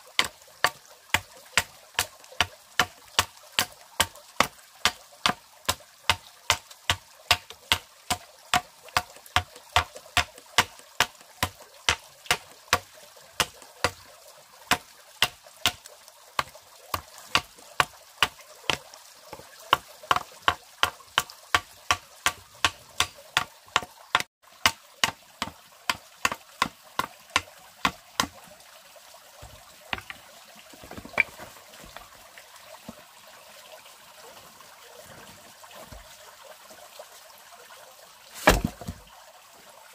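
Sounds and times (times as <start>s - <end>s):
hand tool striking wood: 0.2s - 14.0s, 16.4s - 18.8s, 19.7s - 28.4s, 29.4s - 30.2s, 30.8s - 32.0s, 38.4s - 38.9s.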